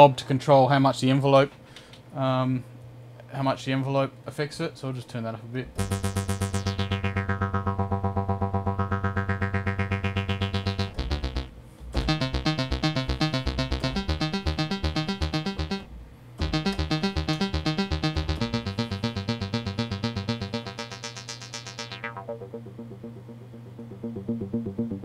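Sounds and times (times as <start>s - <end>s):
synthesizer note run: 5.8s - 25.0s
synthesizer pulsing note: 5.8s - 25.0s.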